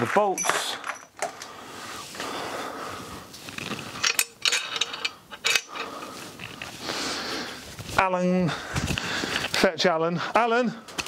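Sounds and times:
metal clinks and knocks: 0.2s - 1.4s, 3.6s - 6.7s.

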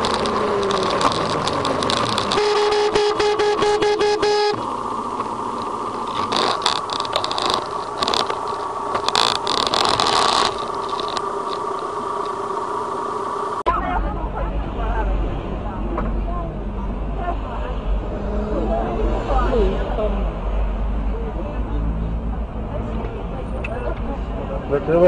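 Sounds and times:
crackles: 0.0s - 13.6s
road and traffic noise: 0.0s - 25.0s
car horn: 0.6s - 5.4s.

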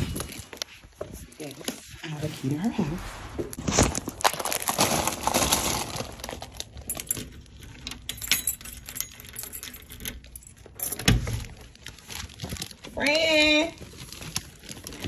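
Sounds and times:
keys jangling: 6.8s - 11.5s.

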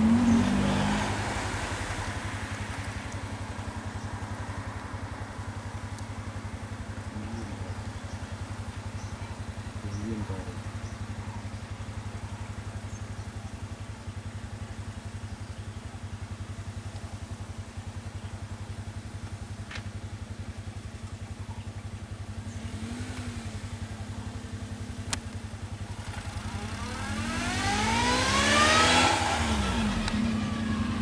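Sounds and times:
passing vehicle engine: 0.0s - 11.1s, 22.4s - 31.0s
vehicle engine idling: 0.0s - 31.0s.

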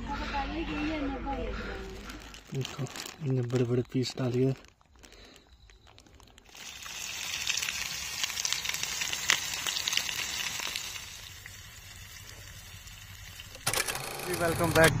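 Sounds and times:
food sizzling in hot oil: 6.5s - 13.6s.

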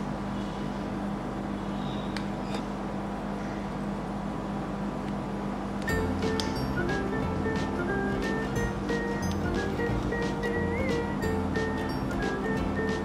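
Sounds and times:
refrigeration unit humming: 0.0s - 13.0s
music: 5.9s - 13.0s.

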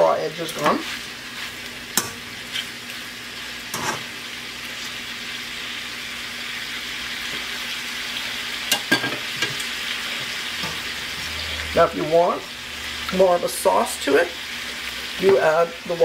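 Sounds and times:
food sizzling in a wok: 0.0s - 16.0s
metal spatula scraping a wok: 3.7s - 4.1s.

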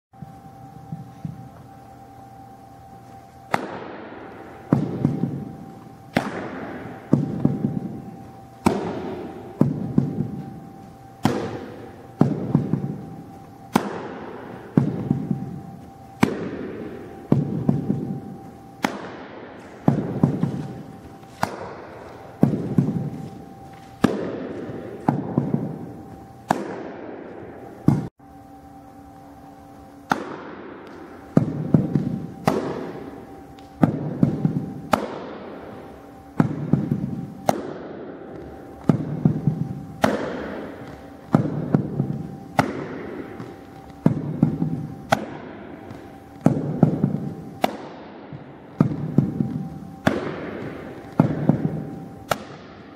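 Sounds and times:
faint steady hum: 0.1s - 52.9s
baseballs popping into mitt: 3.5s - 10.4s, 11.2s - 12.9s, 13.7s - 15.4s, 16.2s - 16.7s, 18.8s - 23.1s, 23.9s - 25.8s, 30.0s - 35.4s, 36.3s - 48.1s, 48.7s - 52.8s.

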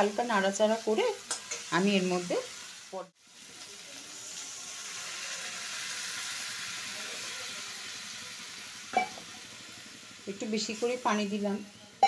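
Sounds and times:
water hissing in hot pan: 0.0s - 12.0s.

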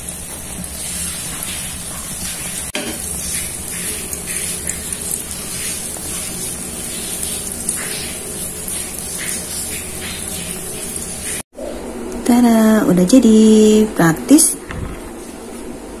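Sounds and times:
omelette sizzling in a frying pan: 0.0s - 11.4s.

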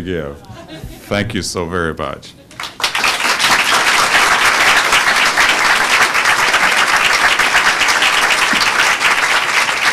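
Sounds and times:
audience applauding: 2.6s - 9.9s.

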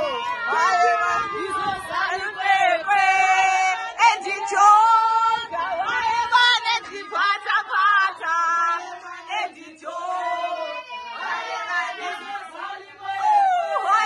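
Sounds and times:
women singing together: 0.0s - 14.0s.

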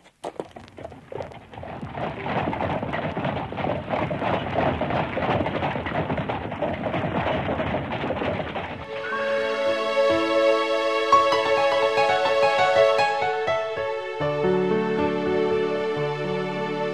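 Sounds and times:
rapid clattering sound effect: 1.1s - 9.1s.

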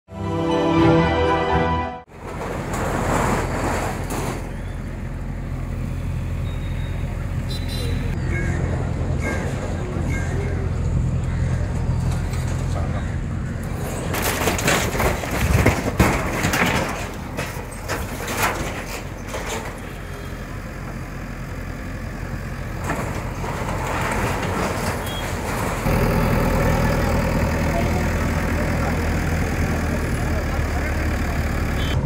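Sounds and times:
diesel engine running: 2.1s - 32.0s
metal roofing crashing: 14.0s - 19.8s.

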